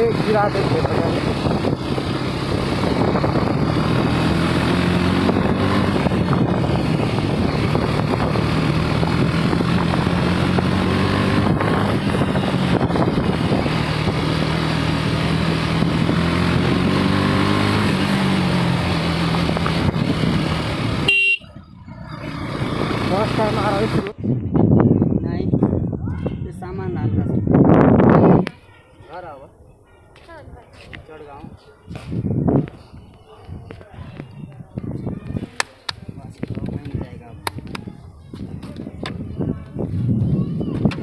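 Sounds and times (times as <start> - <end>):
motorcycle engine running: 0.0 - 24.2
wind and road noise: 0.0 - 41.0.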